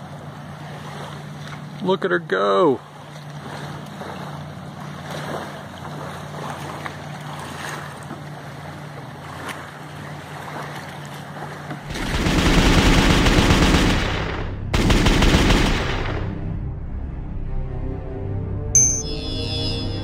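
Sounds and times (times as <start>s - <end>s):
lapping water: 2.8s - 11.9s.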